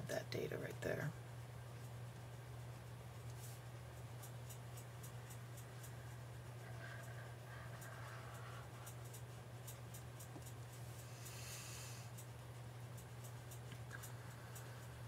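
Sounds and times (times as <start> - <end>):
electrical hum: 0.0 - 15.0
light regular ticking: 0.2 - 15.0
stylus scratching on screen: 2.6 - 12.3.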